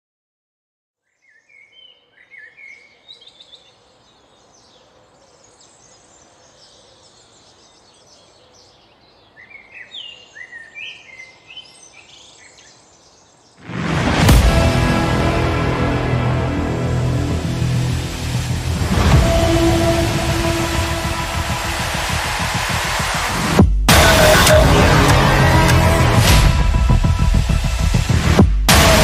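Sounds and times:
small birds chirping: 0:01.0 - 0:13.6
music: 0:13.7 - 0:29.0.

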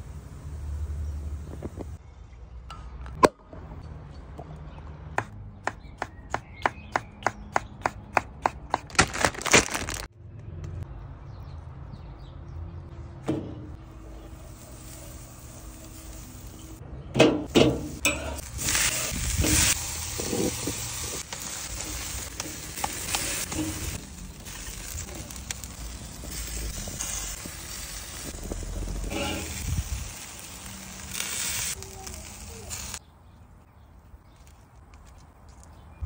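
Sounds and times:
burger patties sizzling on grill: 0:14.0 - 0:16.8, 0:17.6 - 0:33.0.

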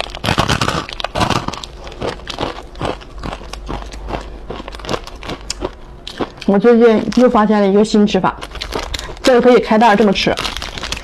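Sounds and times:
crunching bite into crispy bar: 0:00.0 - 0:06.5, 0:08.4 - 0:09.4, 0:10.0 - 0:11.0
crisp chewing crunches: 0:00.0 - 0:07.5, 0:08.3 - 0:11.0.

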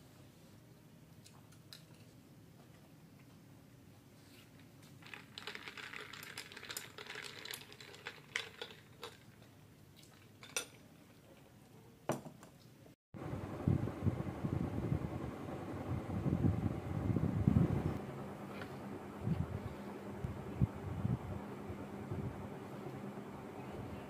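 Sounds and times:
low rumbling: 0:13.2 - 0:24.0.

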